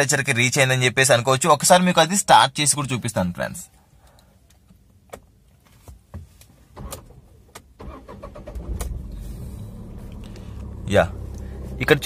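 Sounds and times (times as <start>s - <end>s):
starter cranking engine: 7.8s - 12.0s.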